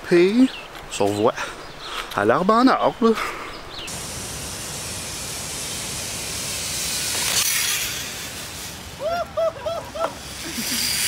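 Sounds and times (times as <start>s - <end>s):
person crying out: 9.0s - 10.8s.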